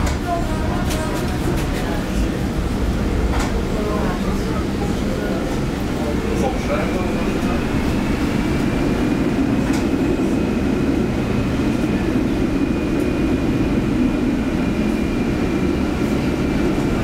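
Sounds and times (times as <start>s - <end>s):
tram rumbling on rails: 0.0s - 17.0s.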